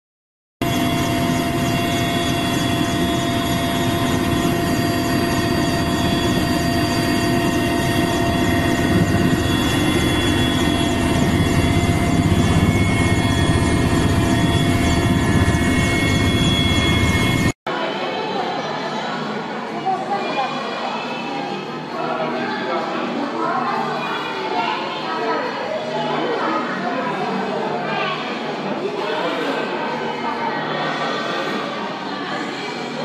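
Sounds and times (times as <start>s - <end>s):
constant whine: 0.6s - 17.6s
helicopter rotor and engine: 0.6s - 17.6s, 21.6s - 33.0s.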